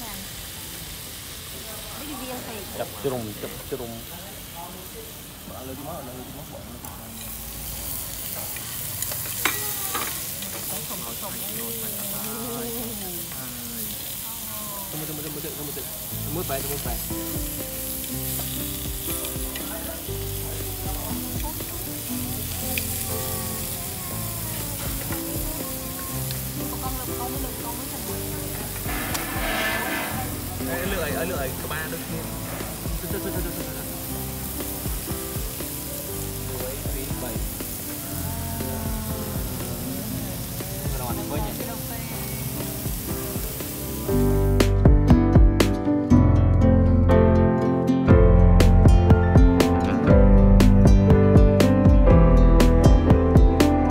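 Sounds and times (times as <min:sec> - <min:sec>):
meat sizzling on a grill pan: 0:00.0 - 0:44.8
background music with held notes: 0:16.0 - 0:53.9.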